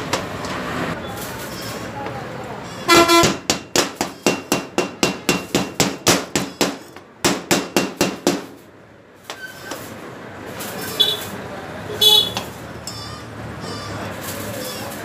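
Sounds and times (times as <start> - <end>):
hammer striking steel: 2.8 - 8.6.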